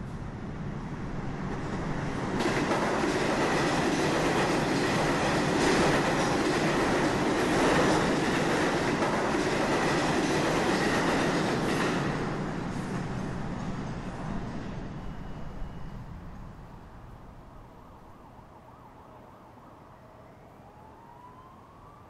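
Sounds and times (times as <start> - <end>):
subway train rumble: 0.0 - 22.0
thin steady squeal: 14.9 - 16.8.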